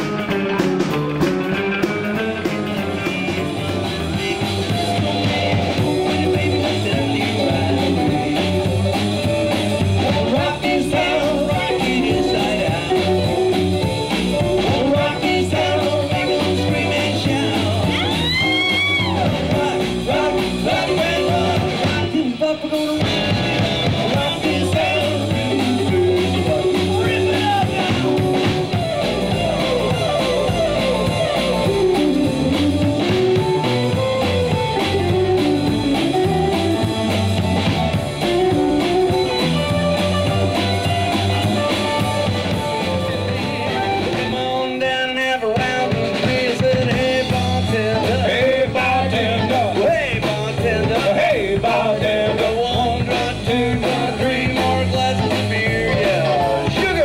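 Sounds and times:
bass guitar: 0.0s - 57.0s
drum kit beat: 0.0s - 57.0s
electric guitar: 0.0s - 57.0s.

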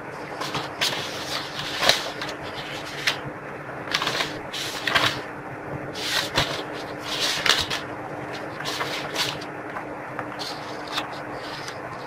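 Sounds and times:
faint steady hum: 0.0s - 12.0s
paper rustling and scraping: 0.2s - 3.2s, 3.9s - 5.3s, 5.9s - 9.5s, 10.3s - 12.0s.

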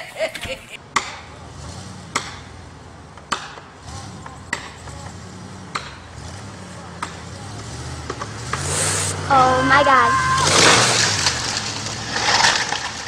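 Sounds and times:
vehicle engine running low: 0.8s - 13.0s
sharp strikes on wood: 3.2s - 3.7s.

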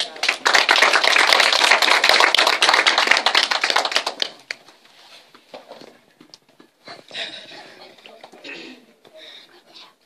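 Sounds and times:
small audience applauding: 0.0s - 4.8s.

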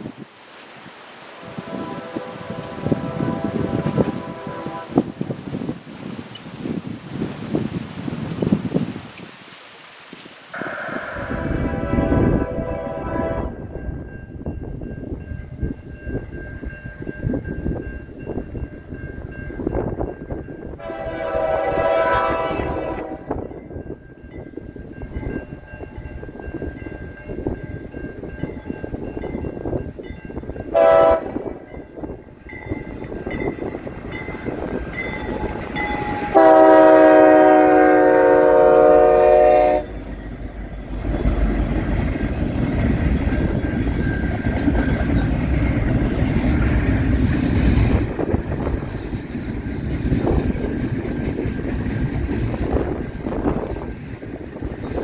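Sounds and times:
train rumbling past: 0.0s - 9.1s, 10.5s - 55.0s
locomotive air horn: 1.4s - 5.2s, 10.6s - 13.7s, 20.8s - 23.4s, 30.7s - 31.6s, 36.0s - 40.0s.

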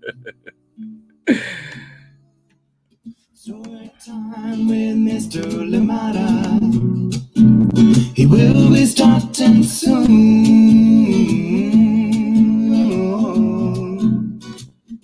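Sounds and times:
theme song with guitar and singing: 3.5s - 14.6s.

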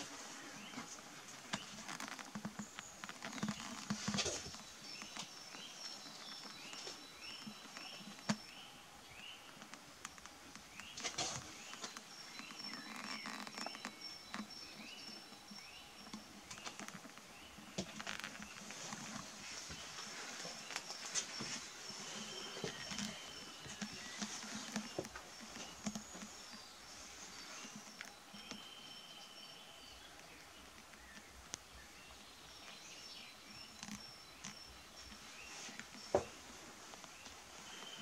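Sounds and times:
small birds chirping: 0.0s - 38.0s
footsteps on wooden floor: 35.1s - 37.4s.

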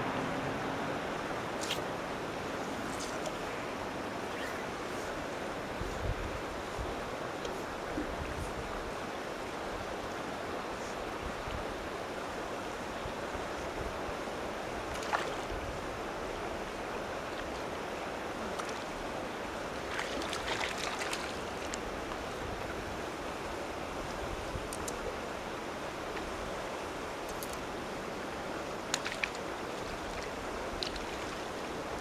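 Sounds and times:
wind on microphone: 2.6s - 9.0s
water lapping at bank: 14.9s - 23.4s, 28.7s - 32.0s.

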